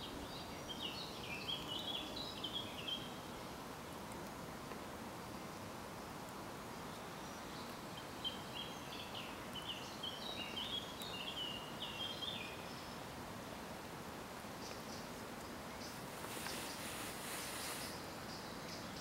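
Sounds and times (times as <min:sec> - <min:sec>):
small bird singing: 0:00.0 - 0:03.4, 0:06.9 - 0:13.1, 0:14.6 - 0:19.0
background hiss: 0:00.0 - 0:19.0.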